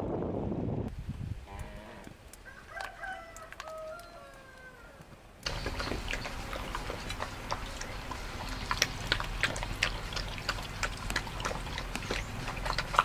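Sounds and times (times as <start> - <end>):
dog lapping from metal bowl: 5.5 - 13.0.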